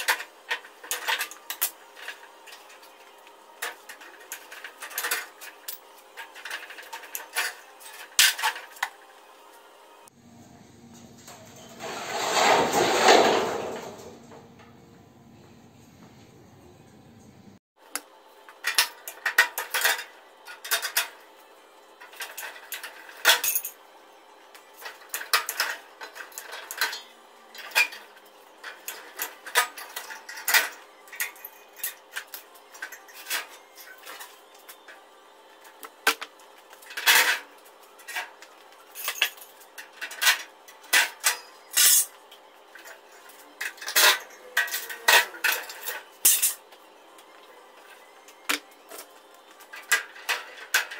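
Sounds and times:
metal tools clanking: 0.0 - 3.0, 3.6 - 8.9, 24.8 - 35.0, 36.8 - 42.2, 42.8 - 46.6.

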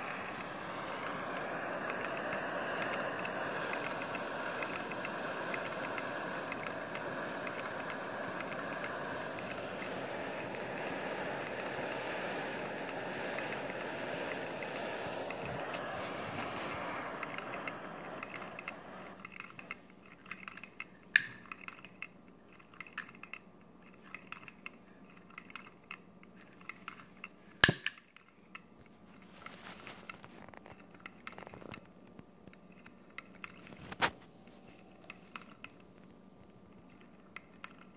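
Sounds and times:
engine model hiss and whirr: 0.0 - 21.7
sharp clicks: 0.0 - 28.7, 34.8 - 37.9.

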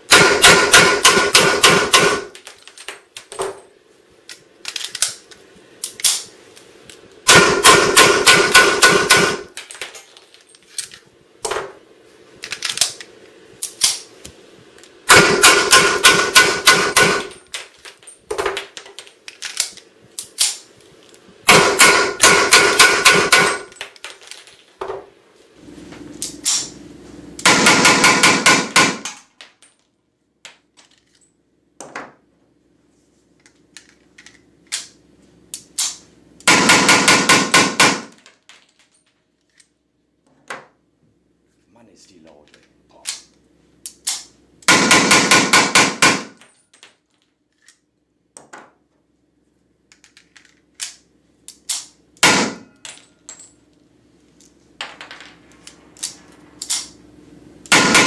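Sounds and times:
blank pistol rapid firing: 0.1 - 2.3, 7.3 - 9.5, 15.1 - 17.3, 21.5 - 23.7, 27.4 - 29.1, 36.5 - 38.2, 44.7 - 46.4, 57.7 - 58.0
pistol handling clicks: 5.8 - 6.3, 12.5 - 14.1, 49.9 - 52.0, 55.6 - 57.0.

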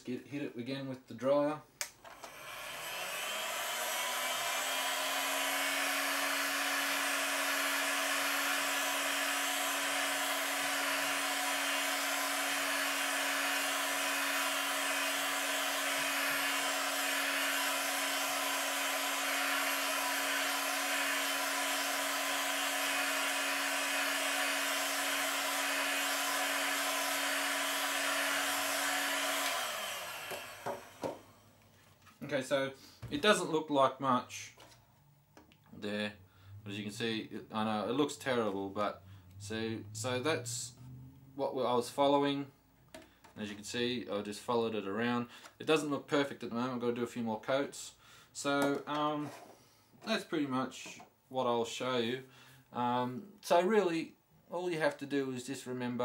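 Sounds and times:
hot-air dryer blowing: 2.1 - 31.5.

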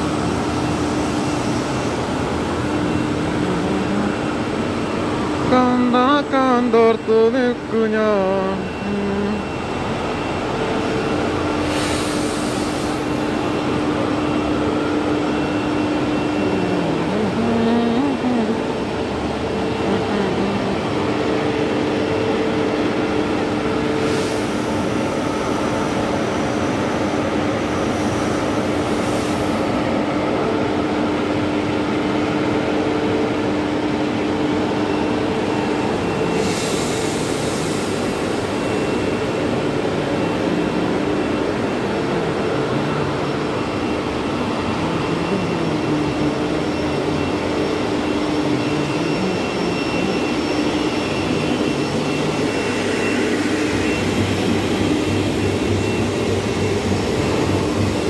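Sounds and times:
steady hum: 0.0 - 29.6, 37.1 - 58.0
extrusion machine running: 42.6 - 58.0.

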